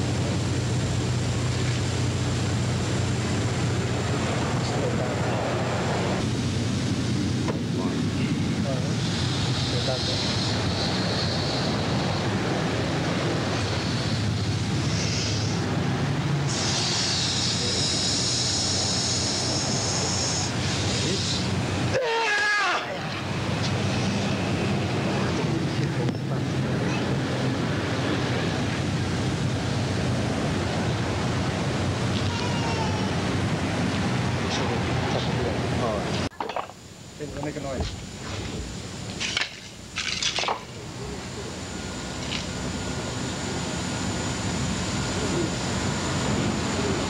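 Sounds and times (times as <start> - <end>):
steady rushing noise: 0.0 - 22.0, 23.0 - 47.0
faint voice: 25.8 - 27.4.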